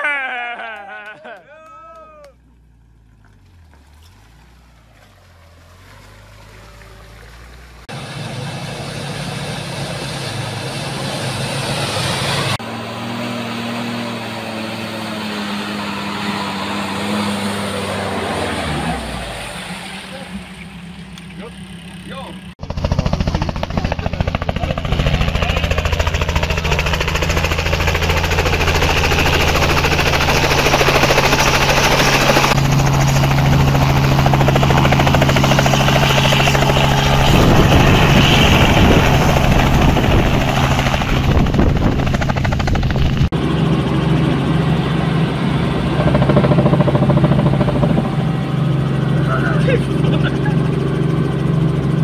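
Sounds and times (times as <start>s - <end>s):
helicopter engine and rotor: 7.9s - 18.5s, 22.5s - 52.0s.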